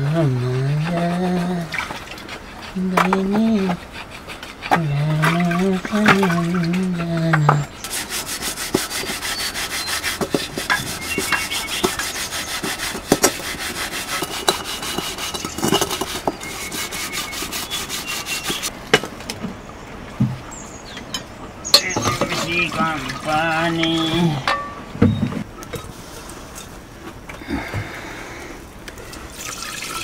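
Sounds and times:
metal plate being scrubbed: 0:00.4 - 0:18.7
metal dishes knocking: 0:21.2 - 0:22.9.

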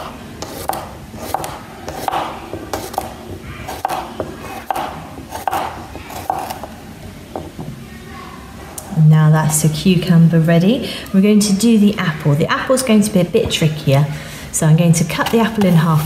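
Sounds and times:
knife chopping cucumber on board: 0:00.0 - 0:06.7.

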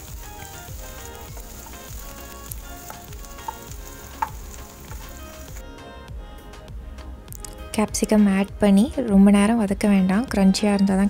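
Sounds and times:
onions sizzling in pan: 0:00.0 - 0:05.6
wooden spoon stirring: 0:00.0 - 0:05.6.

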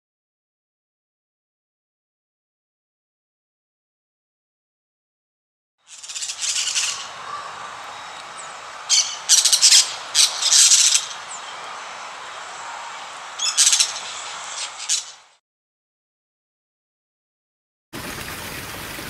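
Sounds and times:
parrots squawking: 0:05.9 - 0:15.3
steady background hiss: 0:05.9 - 0:15.4.

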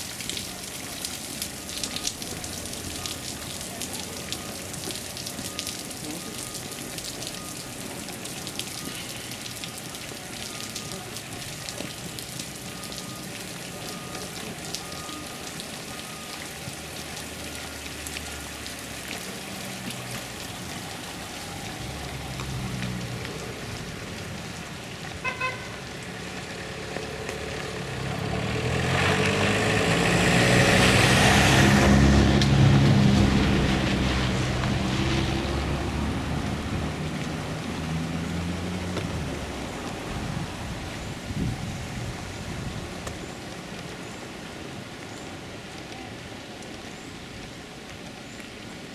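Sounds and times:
bus horn toot: 0:25.2 - 0:25.8.

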